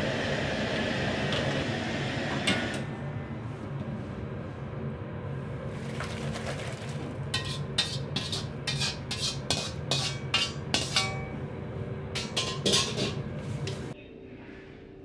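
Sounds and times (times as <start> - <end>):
kitchen hum: 0.0 - 14.0
metal ladle clanking in wok: 7.3 - 11.4, 12.2 - 14.0.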